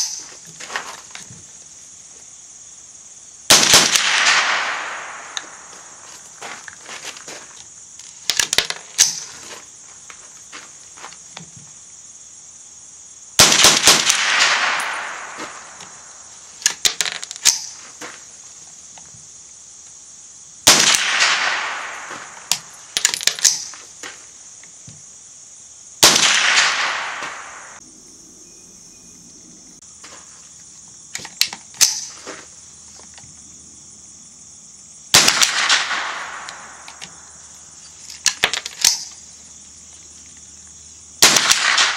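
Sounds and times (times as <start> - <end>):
high insect buzz: 0.0 - 41.9
rifle shots: 3.5 - 6.0, 13.4 - 16.3, 20.6 - 23.6, 26.0 - 27.8, 35.1 - 37.3, 41.2 - 41.9
quieter sharp cracks: 3.5 - 6.6, 13.4 - 17.9, 20.6 - 24.2, 26.0 - 27.8, 35.1 - 39.2, 41.2 - 41.9.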